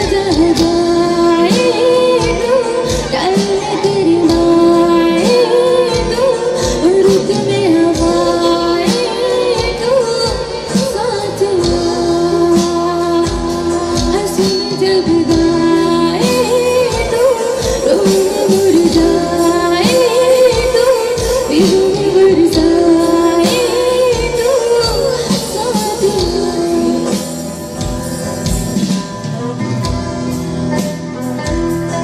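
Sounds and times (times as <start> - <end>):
band with drum kit: 0.0 - 32.0
woman singing through microphone: 0.0 - 32.0.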